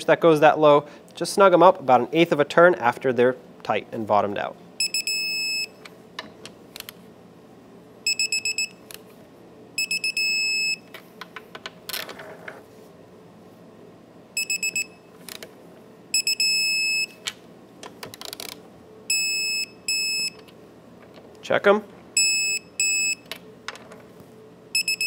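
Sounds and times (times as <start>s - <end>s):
torque wrench beeping: 4.8s - 5.7s, 8.1s - 8.8s, 9.8s - 10.8s, 14.4s - 15.0s, 16.2s - 17.2s, 19.1s - 20.4s, 22.2s - 23.2s, 24.8s - 25.0s.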